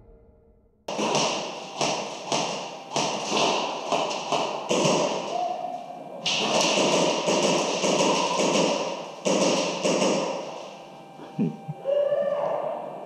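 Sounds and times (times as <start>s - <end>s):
airsoft gunfire bursts: 0.9s - 5.3s, 6.2s - 10.5s.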